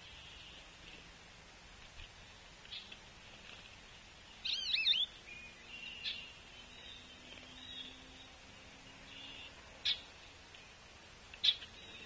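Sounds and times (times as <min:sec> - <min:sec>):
bird chip: 0:04.4 - 0:05.2
songbird whistled call: 0:04.4 - 0:08.3.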